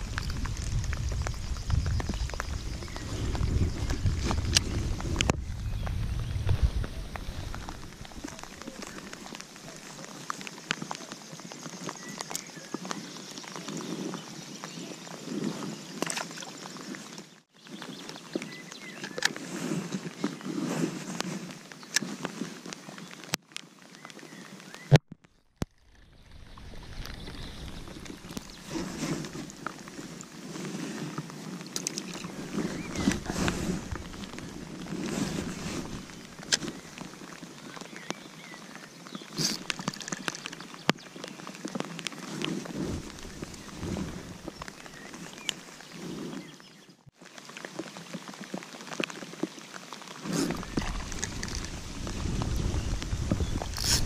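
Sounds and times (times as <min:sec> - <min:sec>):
rain and wind on microphone: 0:00.0 - 0:25.0, 0:25.6 - 0:54.0
rain jacket rustling: 0:26.4 - 0:37.9, 0:39.2 - 0:46.5, 0:50.0 - 0:54.0.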